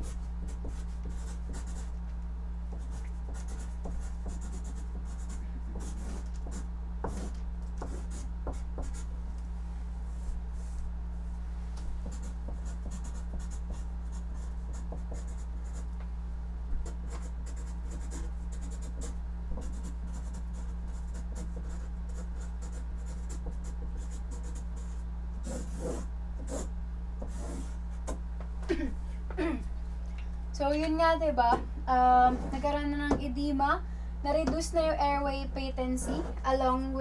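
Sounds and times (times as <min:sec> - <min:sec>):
pen scratching on paper: 0:00.0 - 0:01.9, 0:02.7 - 0:09.1, 0:16.8 - 0:28.1
low electrical hum: 0:00.0 - 0:37.0.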